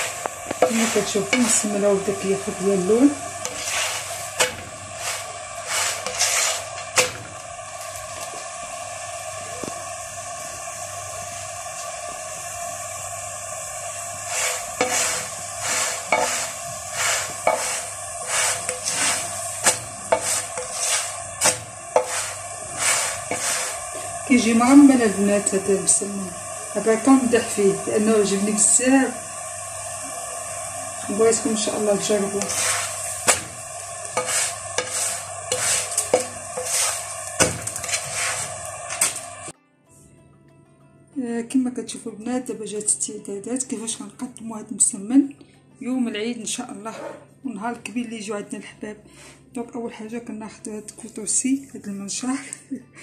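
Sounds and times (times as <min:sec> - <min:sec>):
utensil scraping a pan: 0:00.0 - 0:07.3, 0:14.2 - 0:24.9, 0:31.1 - 0:39.2, 0:46.8 - 0:47.3
flatbread sizzling on a griddle: 0:00.0 - 0:39.6.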